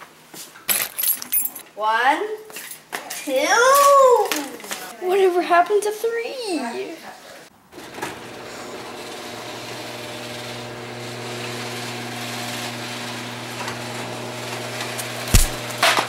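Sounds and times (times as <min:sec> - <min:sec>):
garage door opener motor hum: 0:07.7 - 0:16.0
loud thump: 0:15.3 - 0:15.6.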